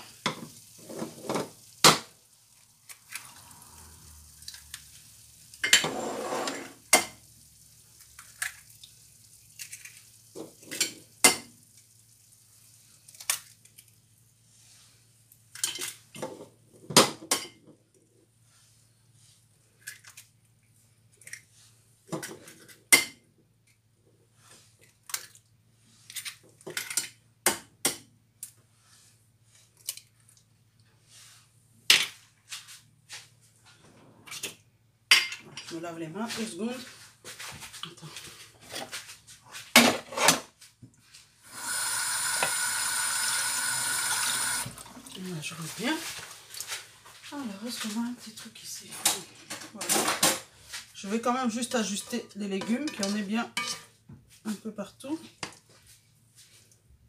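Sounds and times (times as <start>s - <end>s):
rustling noise: 30.9s - 34.2s, 35.7s - 41.4s, 45.3s - 49.5s.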